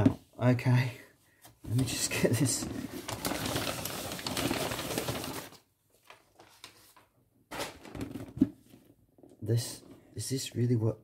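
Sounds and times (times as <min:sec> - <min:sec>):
packing paper rustling and crinkling: 0:01.8 - 0:08.2.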